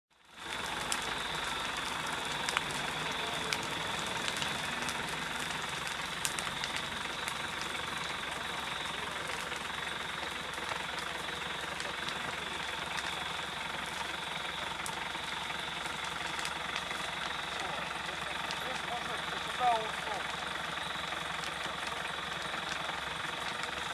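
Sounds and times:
dry grass fire crackling: 0.1s - 23.9s.

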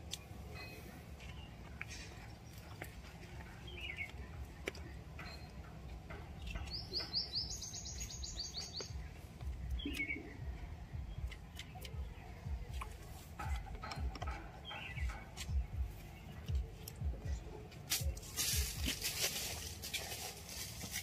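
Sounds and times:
low steady rumble: 0.0s - 21.0s
bird trill: 5.2s - 9.1s, 9.7s - 12.4s, 13.4s - 17.4s
bird chirps: 6.3s - 18.9s.

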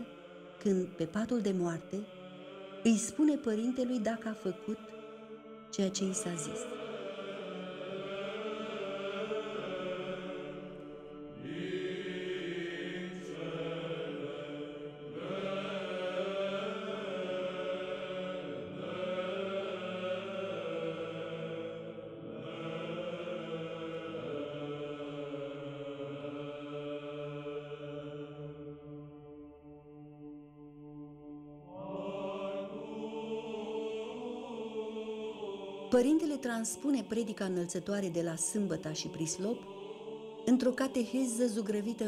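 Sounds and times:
voices chanting: 0.0s - 28.7s, 31.7s - 42.0s.

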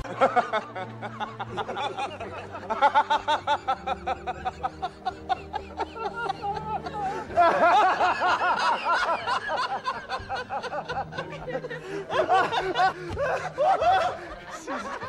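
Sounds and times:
man laughing hysterically: 0.0s - 15.0s.

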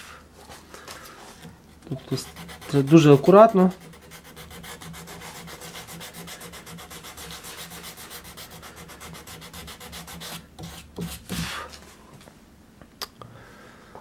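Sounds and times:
hand sanding wood: 1.3s - 11.8s.

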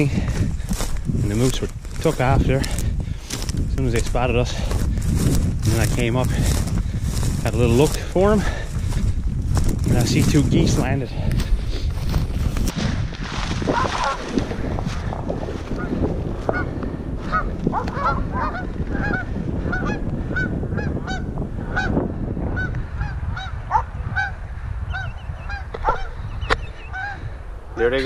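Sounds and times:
rustling through brush: 0.0s - 19.0s
wind rumble on microphone: 0.0s - 28.0s
geese honking: 13.7s - 14.4s, 17.3s - 27.3s.

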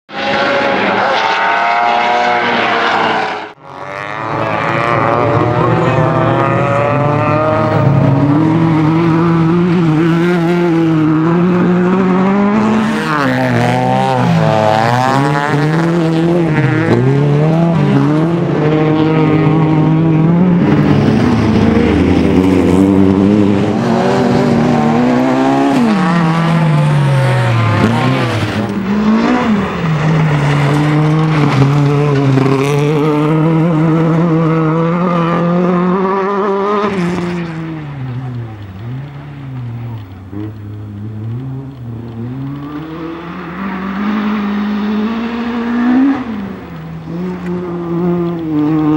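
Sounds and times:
race car engines revving: 0.1s - 48.9s.

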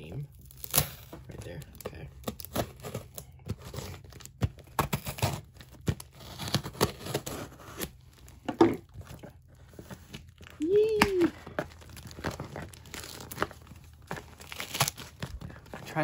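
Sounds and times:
tape and cardboard crinkling: 0.1s - 16.0s
knife cutting packing tape: 0.4s - 8.0s, 14.1s - 15.2s.

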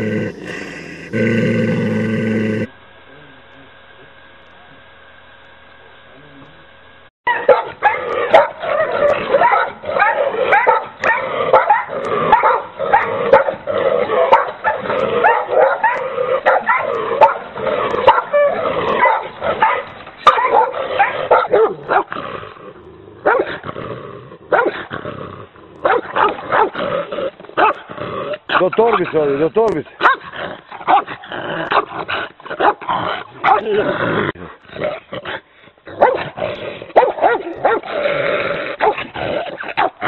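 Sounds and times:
large dogs barking rapidly: 7.3s - 22.2s, 23.2s - 23.6s, 24.5s - 24.9s, 25.8s - 26.9s, 27.6s - 29.3s, 29.9s - 33.8s, 35.9s - 38.1s, 38.7s - 40.0s.

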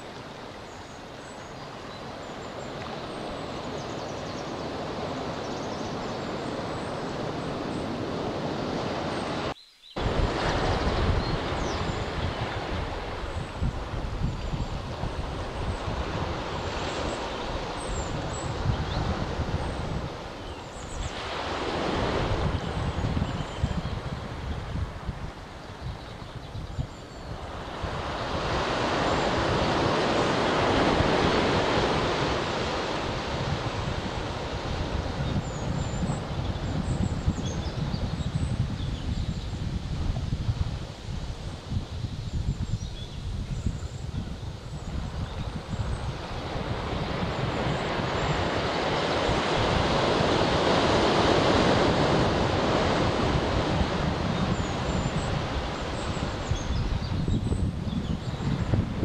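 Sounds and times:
ocean surf washing over rocks: 0.0s - 23.3s, 27.3s - 37.4s, 45.0s - 59.0s
wind rumbling on microphone: 0.0s - 59.0s
faint bird chirps: 9.6s - 10.0s.

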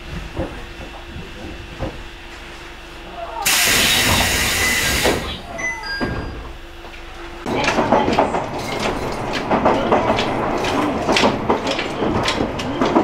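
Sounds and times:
train door air hiss: 3.4s - 5.4s
train rattling on track: 3.4s - 13.0s
sliding doors knocking: 7.4s - 13.0s.

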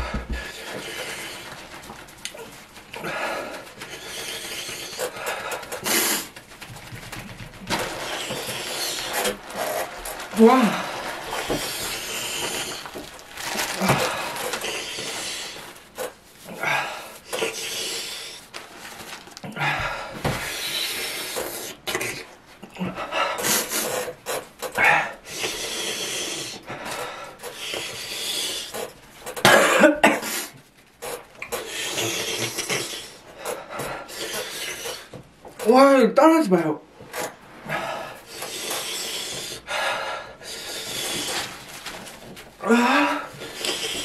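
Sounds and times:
man breathing hard: 0.0s - 18.5s, 19.5s - 21.9s, 22.6s - 29.4s, 31.5s - 35.2s, 37.6s - 44.0s
paper tissues rustling: 0.0s - 35.7s, 36.8s - 44.0s
man coughing: 29.4s - 30.5s.

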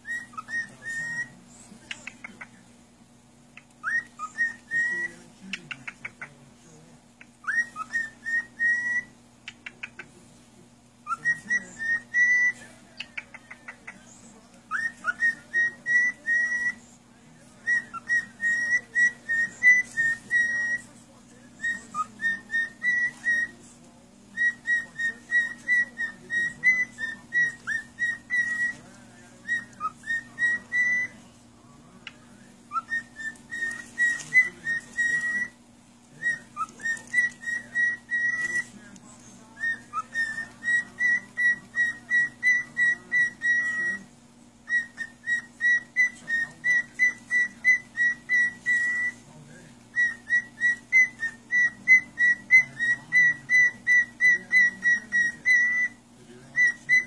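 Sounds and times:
parrot whistling: 0.0s - 1.3s, 3.6s - 6.2s, 7.2s - 10.0s, 11.0s - 13.9s, 14.7s - 16.8s, 17.6s - 20.9s, 21.5s - 23.6s, 24.3s - 31.2s, 32.7s - 35.6s, 36.2s - 38.7s, 39.6s - 49.2s, 49.9s - 57.0s
steady low hum: 0.0s - 57.0s.

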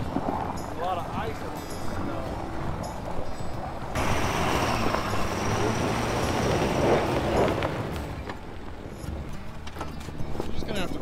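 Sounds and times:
tyres on icy road: 0.0s - 10.6s
low engine rumble: 3.8s - 9.7s.

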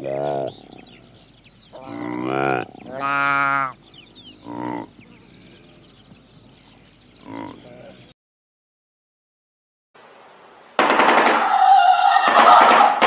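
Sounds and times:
antelope calling: 0.0s - 8.1s, 11.4s - 13.0s.

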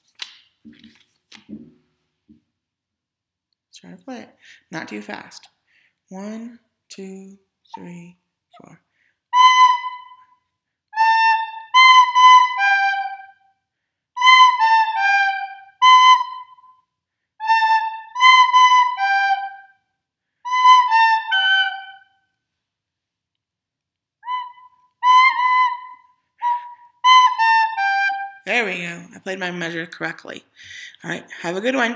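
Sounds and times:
recorder playing phrases: 6.1s - 8.7s, 9.3s - 10.3s, 11.0s - 13.4s, 14.2s - 16.7s, 17.4s - 19.7s, 20.5s - 22.1s, 24.2s - 29.0s.

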